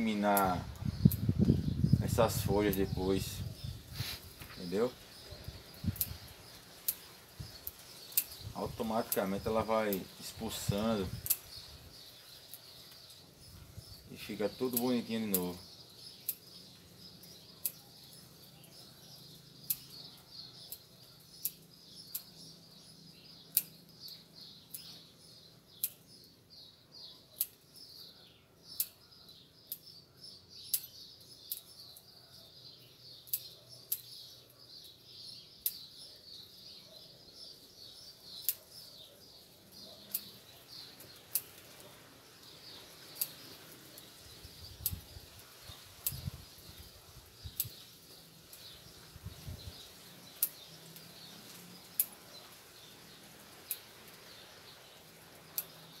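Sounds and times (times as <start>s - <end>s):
birds chirping: 0.0s - 56.0s
scissors snipping leaves: 6.8s - 11.6s, 14.5s - 15.6s.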